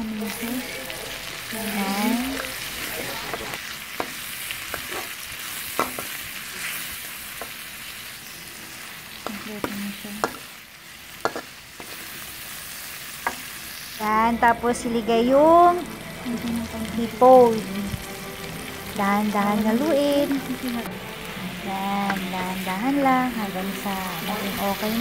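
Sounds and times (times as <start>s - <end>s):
paste sizzling in hot oil: 0.0s - 25.0s
metal spatula scraping a wok: 3.2s - 7.6s, 11.1s - 13.9s.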